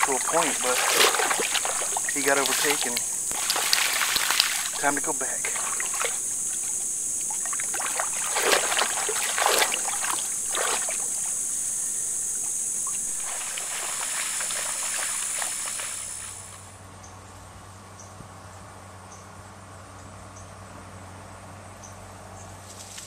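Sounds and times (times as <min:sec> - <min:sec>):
splashing through shallow water: 0:00.0 - 0:16.7.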